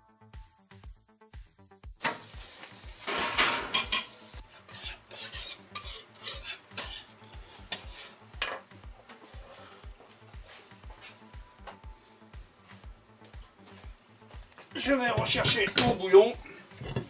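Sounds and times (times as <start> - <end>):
butter sizzling in a hot pan: 2.0 - 8.2.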